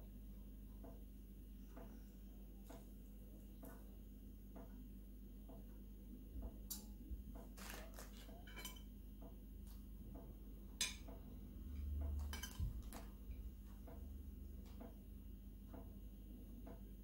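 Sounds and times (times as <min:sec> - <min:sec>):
spoon clinking on ceramic plate: 0:12.3 - 0:12.7.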